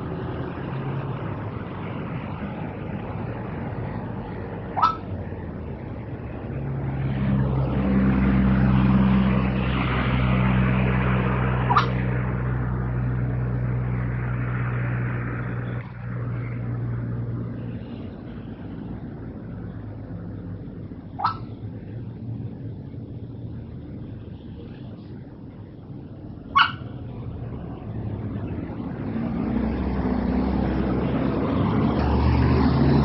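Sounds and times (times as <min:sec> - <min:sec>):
vehicle engine humming: 0:00.0 - 0:33.0
bird sharp rising call: 0:04.8 - 0:05.1, 0:11.6 - 0:12.0.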